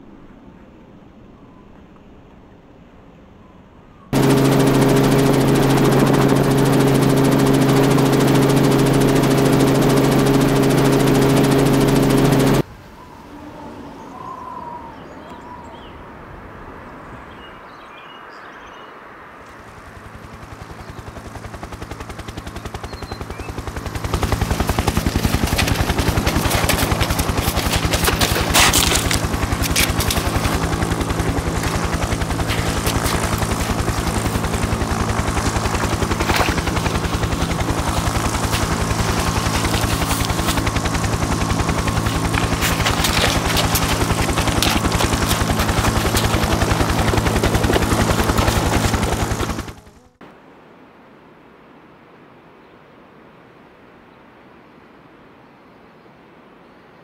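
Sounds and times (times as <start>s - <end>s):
helicopter rotor chopping: 4.2s - 12.6s, 19.6s - 50.1s
sharp cracks: 24.6s - 49.8s.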